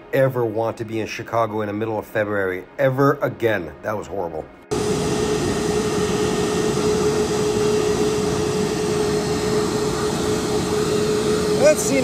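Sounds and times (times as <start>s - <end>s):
jet turbine rushing: 4.7s - 12.0s
turbine high whine: 4.7s - 12.0s.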